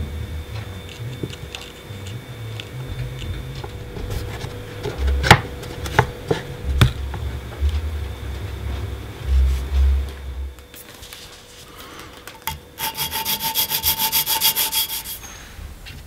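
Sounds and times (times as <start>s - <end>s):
low rumble of handling: 0.0s - 12.4s.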